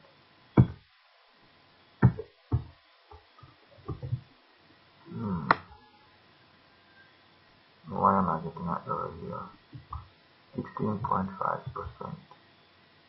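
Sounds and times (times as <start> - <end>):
hummed voice murmur: 5.0 - 6.0, 7.8 - 9.6, 10.6 - 12.3.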